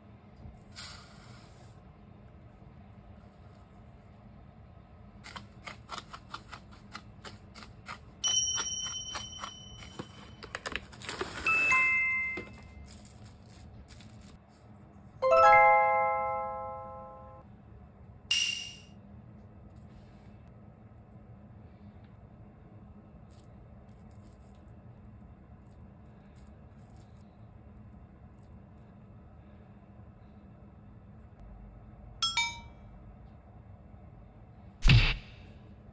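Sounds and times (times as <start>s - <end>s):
ringing chime tones: 11.5s - 12.8s, 15.2s - 17.4s
faint low hum: 12.1s - 35.9s
bell-like ding: 15.2s - 17.4s, 32.2s - 32.8s.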